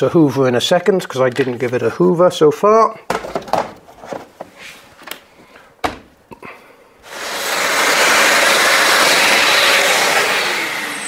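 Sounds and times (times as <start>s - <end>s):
vacuum cleaner running: 7.0s - 11.0s.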